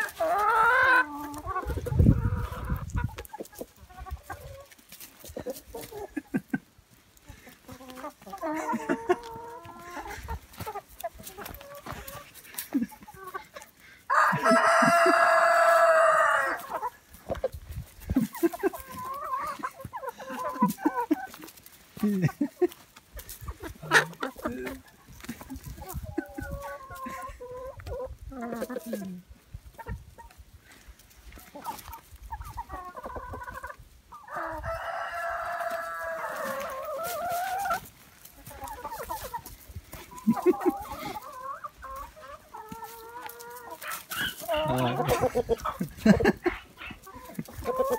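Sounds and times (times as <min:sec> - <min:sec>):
hens clucking: 0:00.0 - 0:47.9
rooster crowing: 0:14.1 - 0:16.6, 0:34.3 - 0:36.7.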